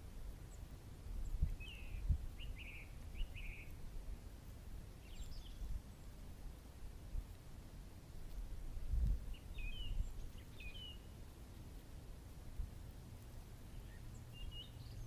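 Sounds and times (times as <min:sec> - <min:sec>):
small bird chirping: 0:00.4 - 0:03.8, 0:05.0 - 0:06.2, 0:09.2 - 0:11.8, 0:13.6 - 0:15.0.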